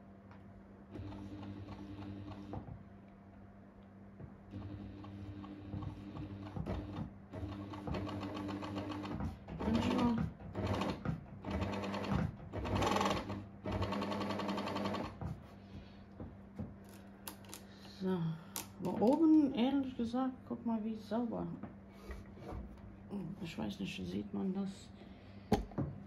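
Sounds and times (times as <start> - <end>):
electric sewing machine running: 0.9 - 2.6, 4.5 - 15.2.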